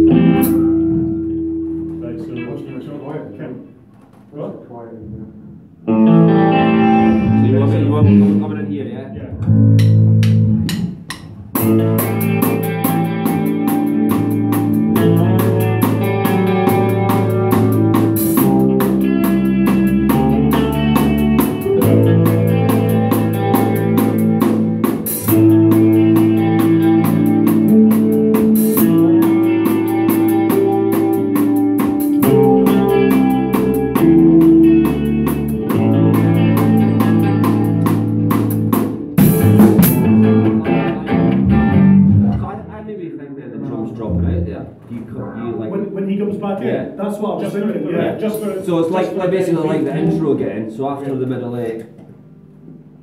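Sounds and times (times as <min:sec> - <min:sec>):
drums: 0:00.0 - 0:02.3, 0:05.0 - 0:08.6, 0:09.2 - 0:42.7
bass line: 0:00.0 - 0:02.6, 0:05.0 - 0:42.8
electric guitar chords: 0:00.0 - 0:02.8, 0:05.0 - 0:42.7.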